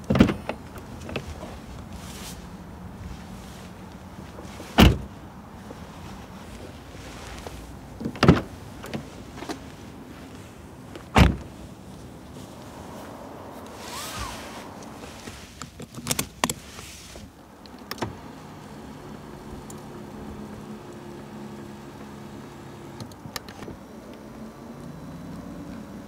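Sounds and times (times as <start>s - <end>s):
soft rustle: 0.4s - 17.6s
car door latch clicks: 11.1s - 11.5s
heavy door thud: 11.1s - 11.5s.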